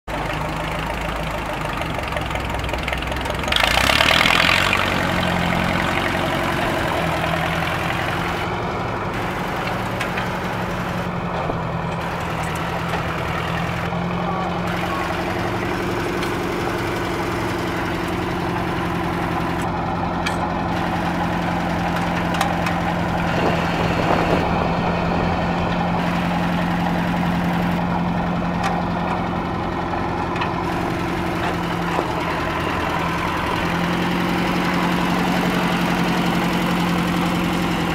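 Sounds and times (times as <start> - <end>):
tractor engine running: 0.0 - 37.9.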